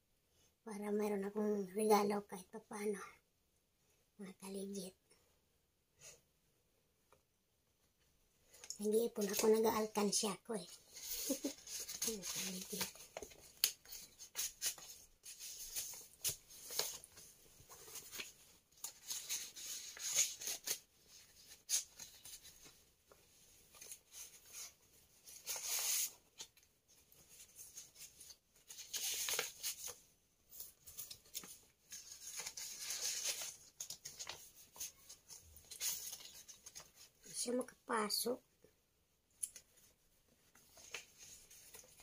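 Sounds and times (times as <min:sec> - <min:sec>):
paper rustling and crinkling: 0:08.5 - 0:10.0, 0:10.7 - 0:37.3, 0:39.5 - 0:42.0.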